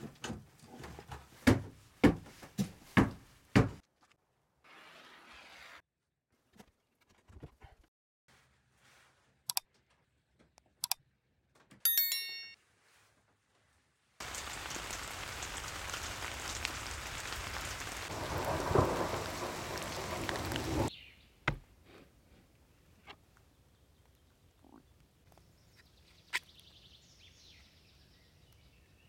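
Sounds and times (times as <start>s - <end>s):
brief high ringing: 11.9s - 12.6s
heavy rain: 14.2s - 20.9s
rumble of thunder: 14.3s - 20.9s.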